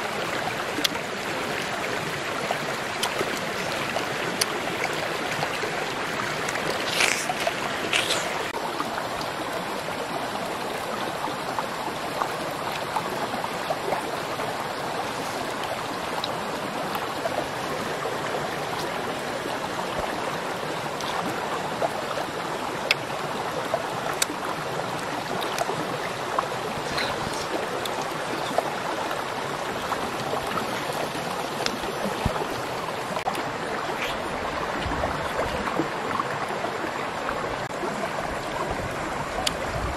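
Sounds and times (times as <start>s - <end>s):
flowing water: 0.0s - 39.9s
chewing soft fruit: 2.9s - 8.6s.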